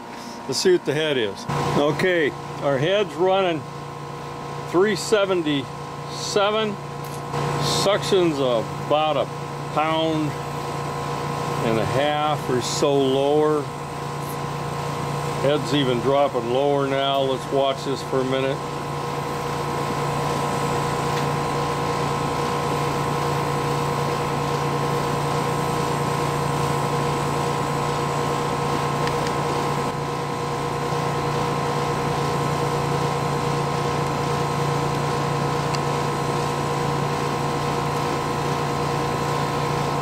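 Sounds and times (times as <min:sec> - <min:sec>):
air conditioner unit humming: 0:00.0 - 0:40.0.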